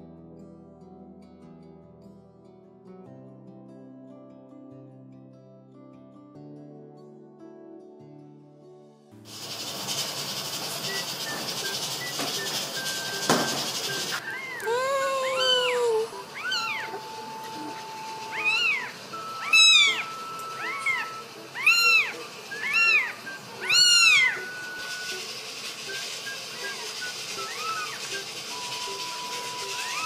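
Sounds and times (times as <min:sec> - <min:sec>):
kitten mewing: 0:14.2 - 0:20.0.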